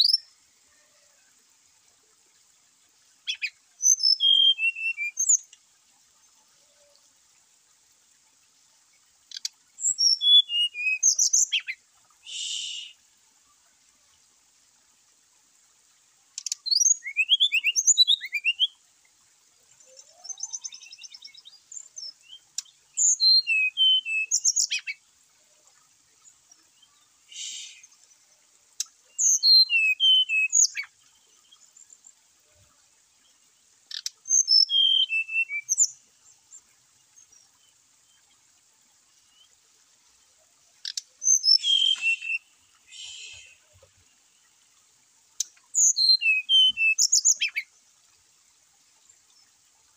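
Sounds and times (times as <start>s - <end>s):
bird singing whistled notes: 0.0s - 0.3s, 3.3s - 5.4s, 9.8s - 13.0s, 16.4s - 18.8s, 19.8s - 25.0s, 29.1s - 30.9s, 33.9s - 36.0s, 41.2s - 43.8s, 45.7s - 47.7s.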